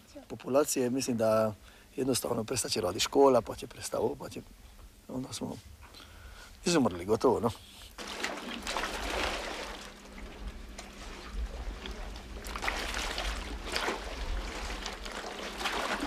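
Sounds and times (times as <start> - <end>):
sea water splashing on hull and rocks: 8.0 - 16.0
low steady rumble: 8.6 - 16.0.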